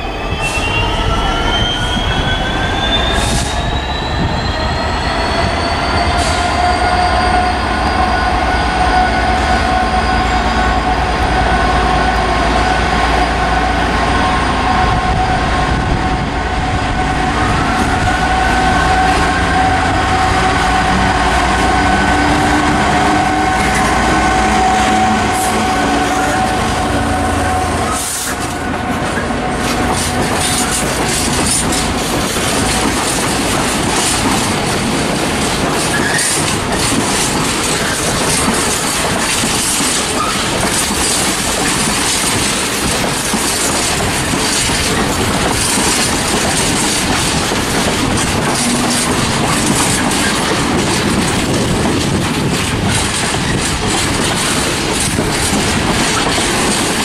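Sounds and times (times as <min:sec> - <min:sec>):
freight train rumbling past: 0:00.0 - 0:57.0
locomotive engine hum: 0:06.0 - 0:57.0
wheels clacking over rail joints: 0:27.4 - 0:57.0.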